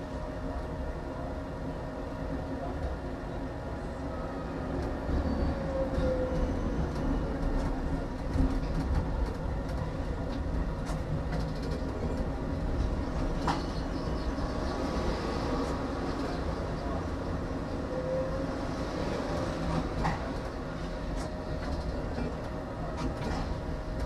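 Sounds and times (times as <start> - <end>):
tram wheels rumbling on rail: 0.0 - 24.0
sharp track clicks: 6.9 - 12.4.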